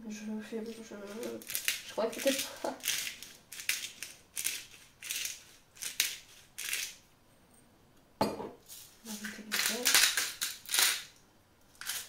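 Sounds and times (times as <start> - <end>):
pepper mill grinding: 0.6 - 7.0, 8.7 - 12.0.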